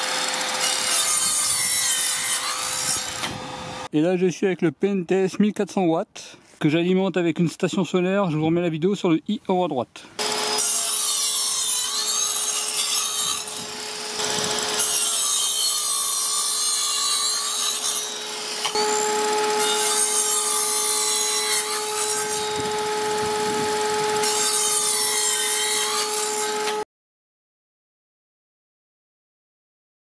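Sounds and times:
mitre saw cutting wood: 0.0s - 3.9s, 10.2s - 26.8s
vacuum humming: 18.1s - 21.3s, 22.1s - 24.3s.

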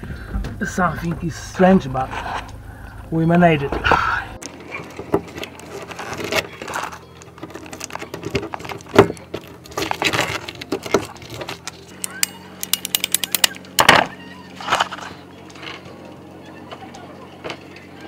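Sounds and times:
loud scrape: 2.0s - 2.5s
sharp clicks: 12.0s - 13.9s.

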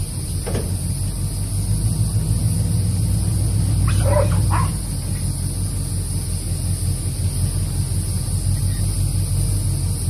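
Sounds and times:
steady low rumble: 0.0s - 10.0s
dog barking: 3.8s - 4.8s.

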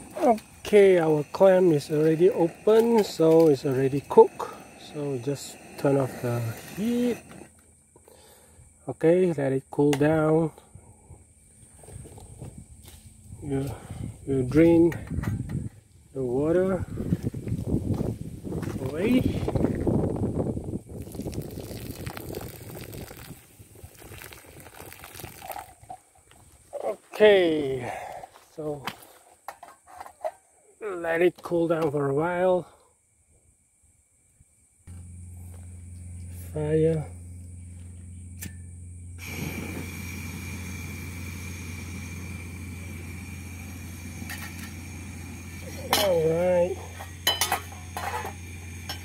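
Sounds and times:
gas burner hissing: 0.0s - 8.8s, 34.9s - 49.0s
hot water splashing onto rocks: 0.3s - 7.4s, 20.9s - 26.0s, 39.2s - 49.0s.

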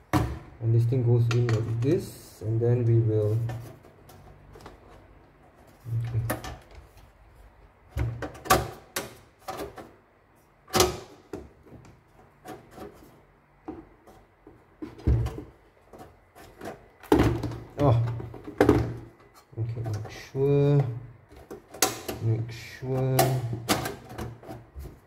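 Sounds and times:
metal and plastic parts knocking: 13.6s - 22.3s, 22.9s - 25.0s.

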